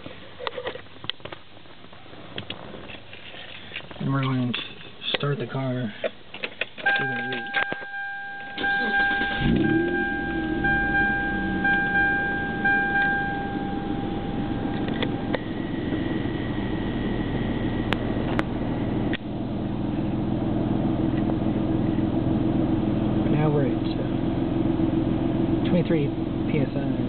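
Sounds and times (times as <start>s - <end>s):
car engine starting and idling: 6.8s - 27.0s
steady electronic tone: 7.8s - 19.1s.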